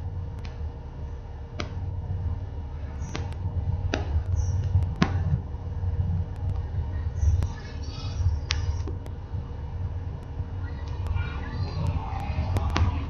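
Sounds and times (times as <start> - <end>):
faint high whine: 0.0 - 13.0
wind buffeting microphone: 0.0 - 13.0.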